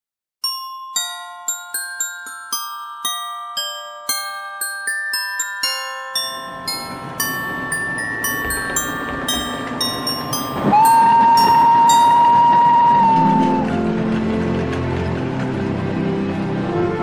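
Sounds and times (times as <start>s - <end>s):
chime-like christmas music: 0.4s - 14.1s
train rumbling: 6.1s - 17.0s
steam locomotive whistle: 10.7s - 14.6s.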